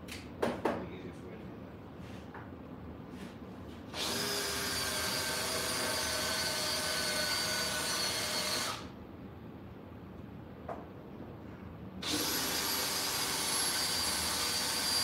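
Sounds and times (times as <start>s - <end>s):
power tool motor whining: 4.0s - 8.9s, 12.0s - 15.0s.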